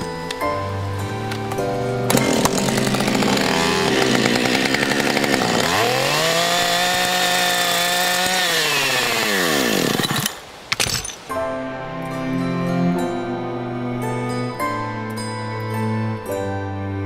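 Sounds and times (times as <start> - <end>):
chainsaw running: 2.0 - 10.4.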